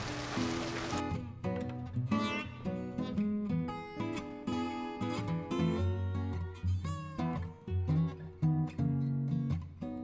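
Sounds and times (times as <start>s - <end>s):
plucked acoustic guitar: 0.0s - 10.0s.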